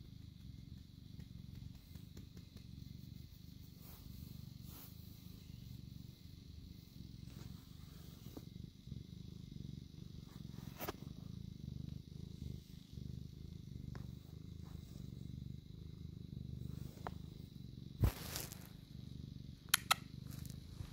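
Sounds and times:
cat purring: 0.0s - 20.9s
light clicks: 19.7s - 20.6s.

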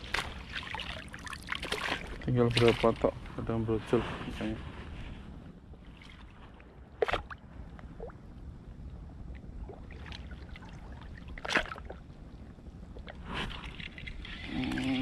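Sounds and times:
small water splashes: 0.0s - 3.2s, 7.0s - 7.4s, 9.4s - 12.1s
sea water lapping and sloshing: 0.0s - 3.5s, 5.8s - 8.4s, 9.1s - 15.0s
low rumble of wind: 0.0s - 15.0s.

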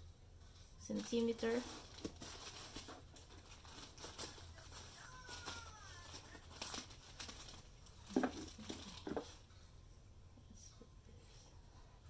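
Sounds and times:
plastic rustle: 0.5s - 9.6s.

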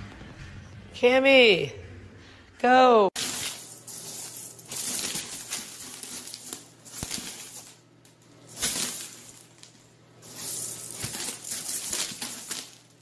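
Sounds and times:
small dry rings rustling and clattering: 3.2s - 13.0s.

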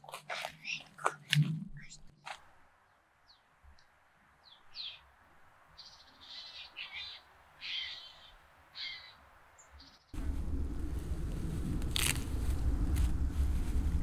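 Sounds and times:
small birds chirping: 0.3s - 1.1s, 1.8s - 10.2s.

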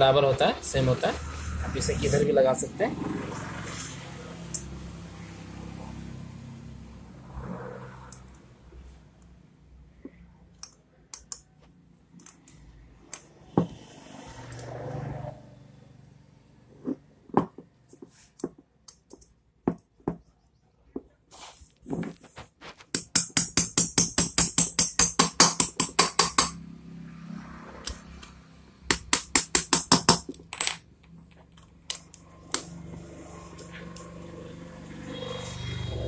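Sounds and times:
metal clicking and tapping: 10.5s - 11.5s.

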